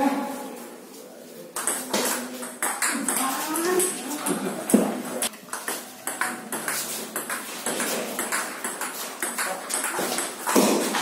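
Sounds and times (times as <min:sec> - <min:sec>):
table tennis ball clicking on paddles: 0:05.5 - 0:11.0.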